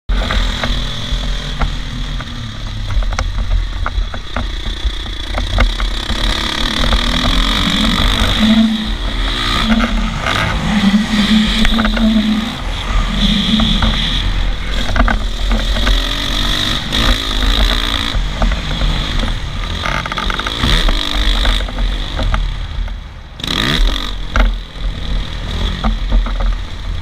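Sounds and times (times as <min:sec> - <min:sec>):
wind rumble on microphone: 0:00.1 - 0:20.0
dirt bike engine revving: 0:00.1 - 0:22.8, 0:23.4 - 0:26.2.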